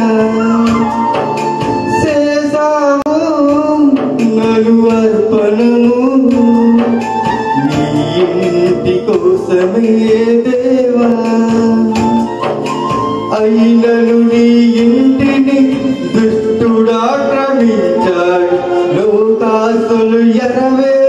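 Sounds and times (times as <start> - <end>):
worship song melody: 0.0 - 21.0
steady drum beat: 3.2 - 19.8.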